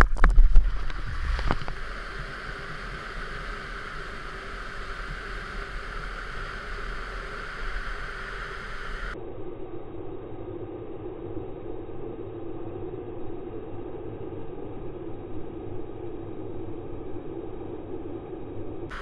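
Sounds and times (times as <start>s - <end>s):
whitewater rapids rushing: 0.6s - 9.2s.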